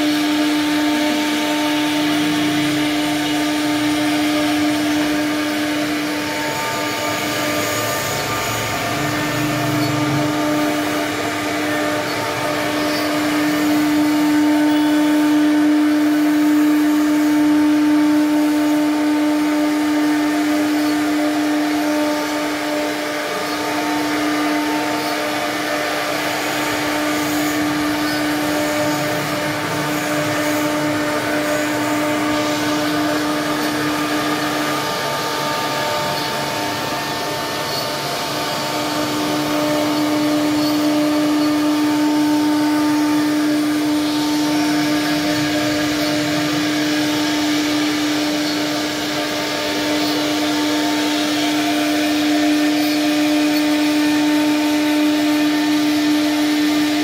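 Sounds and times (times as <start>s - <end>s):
router bit carving wood: 0.0s - 57.0s
router spindle whine: 0.0s - 57.0s.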